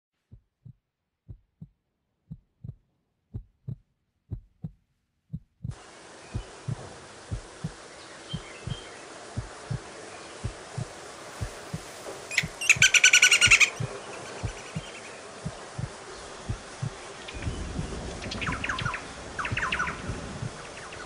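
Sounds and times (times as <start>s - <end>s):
heartbeat thumps: 0.2s - 21.0s
steady hiss: 5.7s - 21.0s.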